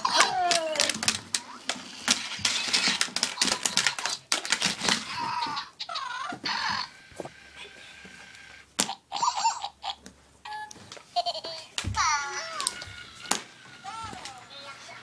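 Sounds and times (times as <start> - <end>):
toy hamsters clicking and clattering: 0.0 - 6.9, 12.1 - 15.0.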